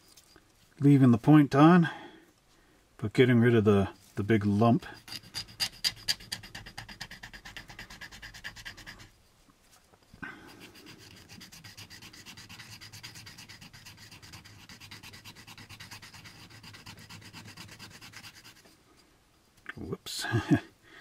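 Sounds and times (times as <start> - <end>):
plastic part sanding strokes: 4.8 - 9.1, 10.5 - 18.8.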